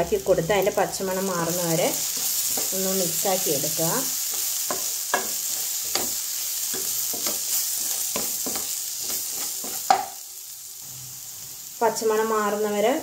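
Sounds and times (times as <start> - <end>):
food sizzling: 0.0 - 13.0
spatula stirring and scraping pan: 0.6 - 10.3
spatula knocking against pan: 9.6 - 10.2.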